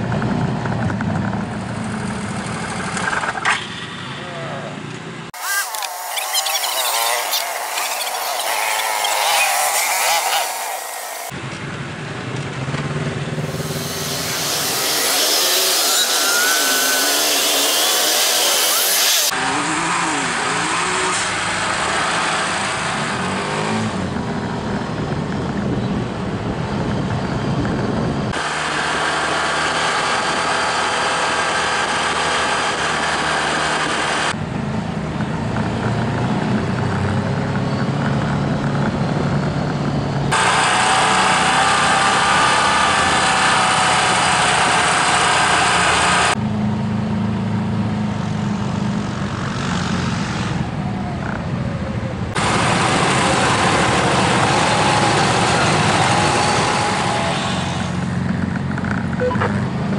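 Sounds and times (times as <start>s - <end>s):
utv engine running: 0.0s - 5.2s
wind noise on microphone: 24.0s - 28.4s.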